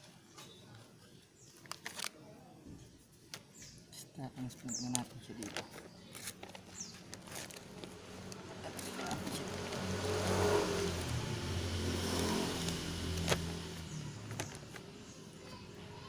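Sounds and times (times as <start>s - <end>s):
vehicle engine passing by: 6.7s - 16.0s.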